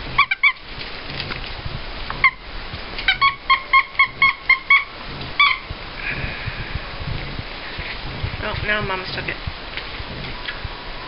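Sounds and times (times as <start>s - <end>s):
squeaky dog toy squeaking: 3.1s - 5.6s.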